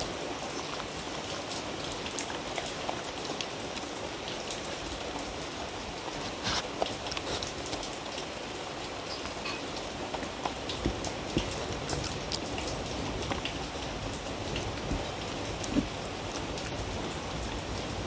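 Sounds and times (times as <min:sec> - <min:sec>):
dog chewing and smacking: 0:10.1 - 0:17.7.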